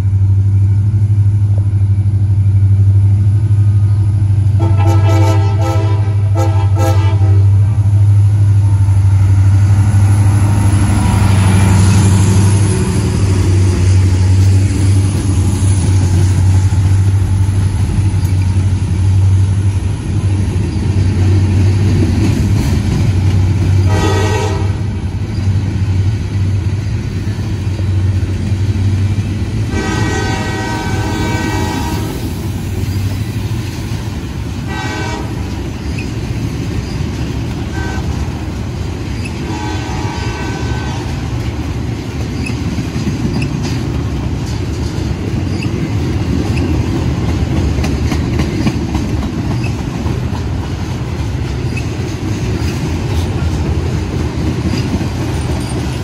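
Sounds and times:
freight train rumbling on rails: 0.0 - 56.0
locomotive horn blasts: 4.5 - 7.8, 23.8 - 24.9, 29.7 - 32.2, 34.7 - 35.5, 37.7 - 38.2, 39.4 - 41.2.

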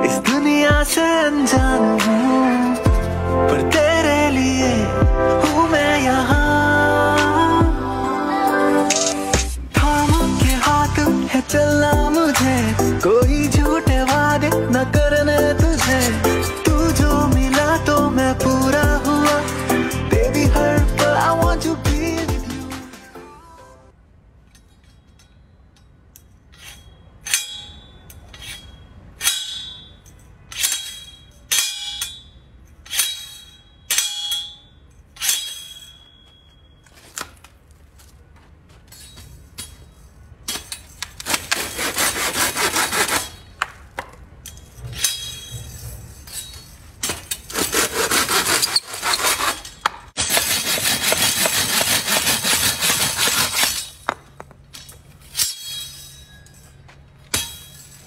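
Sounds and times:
saw rasping through log: 41.2 - 43.5, 47.5 - 54.0.

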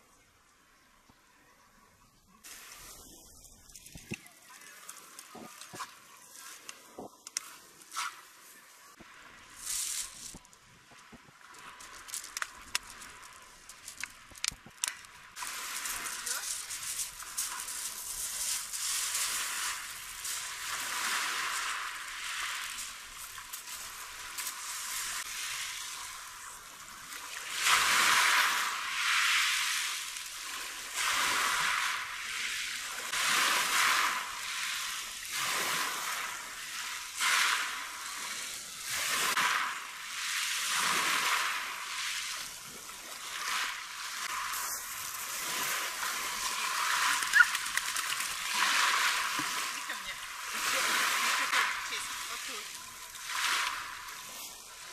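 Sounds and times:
waves splashing on pebbles: 2.5 - 54.9
dog wading through water: 46.1 - 52.6.

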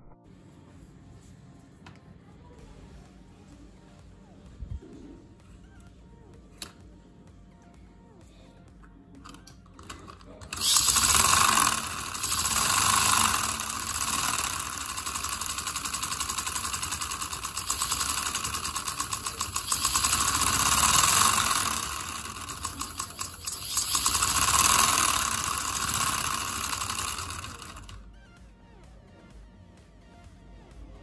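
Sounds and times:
exhaust hissing: 10.5 - 27.9
steam engine clattering: 10.5 - 28.0.

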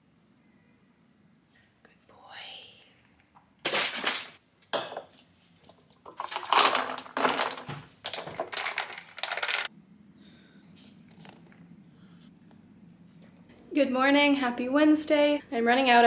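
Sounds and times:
objects clinking and rustling: 3.7 - 9.7.

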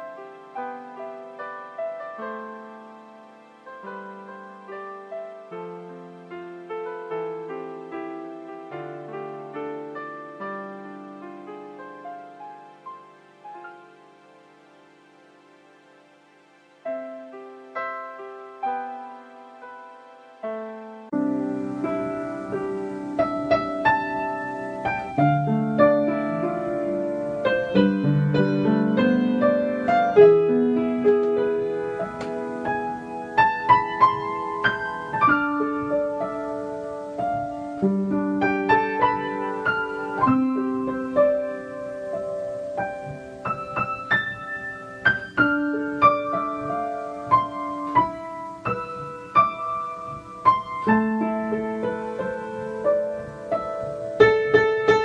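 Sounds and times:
calm piano music: 0.0 - 55.0.

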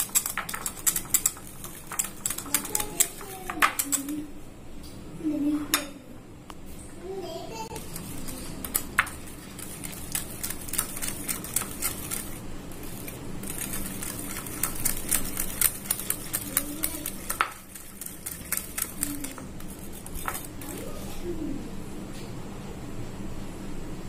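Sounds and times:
whisk clicking against glass bowl: 0.0 - 4.2, 7.8 - 20.7.

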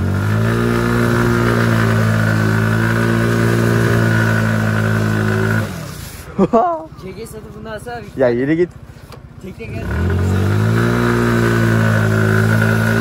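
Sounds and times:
motorcycle engine revving: 0.0 - 6.4, 9.5 - 13.0.

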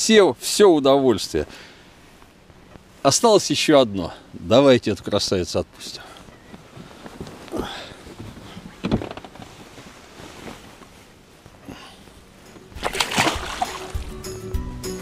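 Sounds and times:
water splashing by boat: 12.2 - 14.2
music: 12.4 - 15.0.

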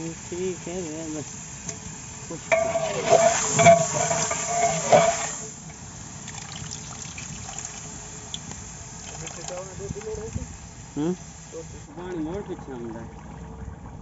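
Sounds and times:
ladle knocking and scraping pot: 2.5 - 5.4
liquid sloshing in a pot: 2.5 - 5.5.

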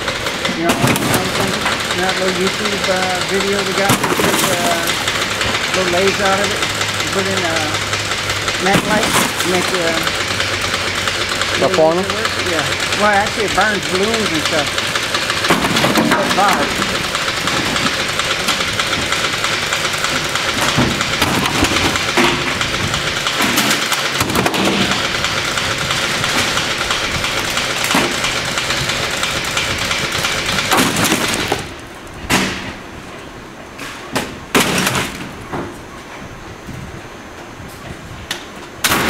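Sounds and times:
industrial shredder grinding: 0.0 - 32.8
boxes dropped into hopper: 0.5 - 1.8, 3.6 - 5.1, 8.6 - 10.0, 14.4 - 18.6, 30.6 - 32.8.

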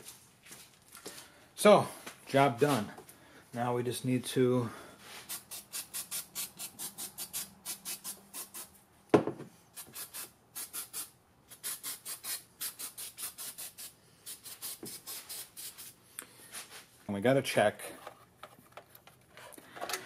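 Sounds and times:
single thump: 9.1 - 9.5.

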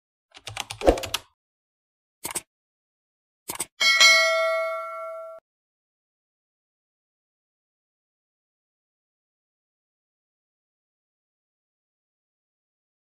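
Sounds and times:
swish effect: 0.8 - 1.2
bell ding: 3.8 - 5.4.

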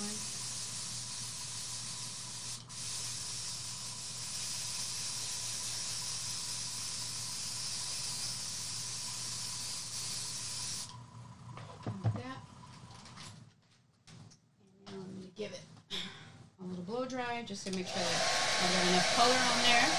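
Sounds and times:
airbrush spraying hiss: 0.0 - 10.9, 17.8 - 19.9.

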